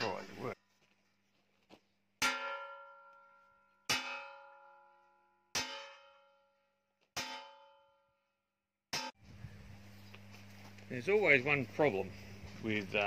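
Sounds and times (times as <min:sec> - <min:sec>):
hammer striking steel: 0:02.2 - 0:08.1, 0:08.9 - 0:09.2.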